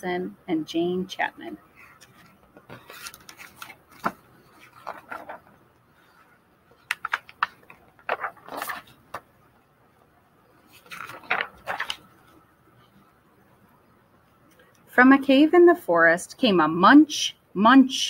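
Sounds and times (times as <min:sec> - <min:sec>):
book pages turning: 0:01.8 - 0:09.3, 0:10.6 - 0:12.4.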